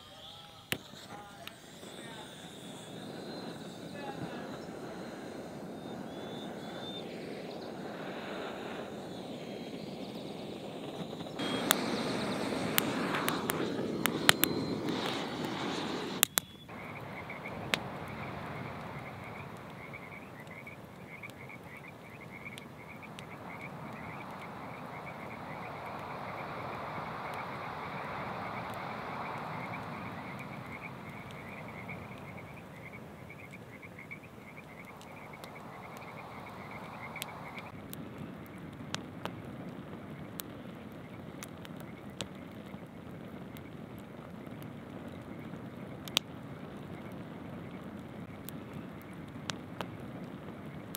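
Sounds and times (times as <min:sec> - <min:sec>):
low rush of background noise: 0:00.0 - 0:50.9
frogs croaking: 0:01.1 - 0:37.9, 0:40.1 - 0:50.9.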